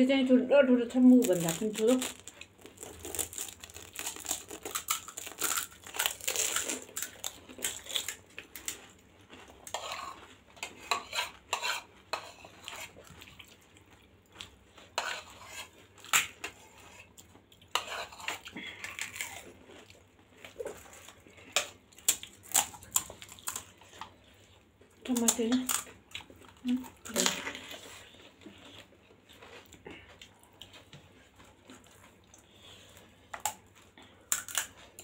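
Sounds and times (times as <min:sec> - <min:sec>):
crisp shells crunching when bitten: 0:01.1 - 0:08.7
wet chewing: 0:01.2 - 0:35.0.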